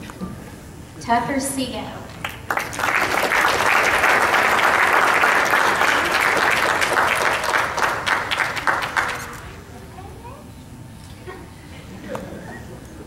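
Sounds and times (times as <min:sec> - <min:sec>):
audience applauding: 0:02.2 - 0:09.6.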